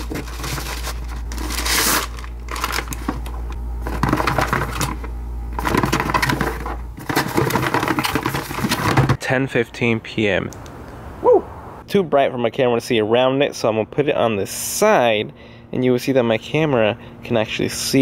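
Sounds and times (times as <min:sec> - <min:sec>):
plastic packaging crinkling: 0:00.0 - 0:08.9
low steady hum: 0:00.0 - 0:18.0.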